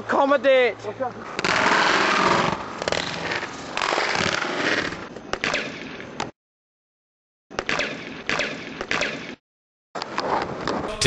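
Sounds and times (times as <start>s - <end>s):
skate wheels rolling on asphalt: 0.1s - 6.3s
skates grinding on concrete: 1.1s - 6.3s.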